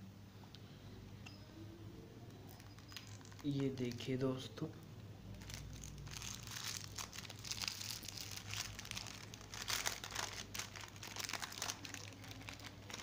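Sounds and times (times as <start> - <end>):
plastic wrapping crinkling: 2.5 - 4.2, 5.3 - 13.0.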